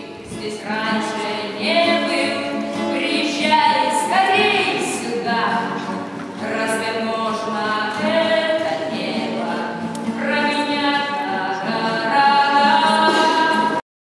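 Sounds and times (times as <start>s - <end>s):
acoustic guitar: 0.0s - 13.8s
woman singing: 0.0s - 13.8s
voices singing along: 3.0s - 13.8s.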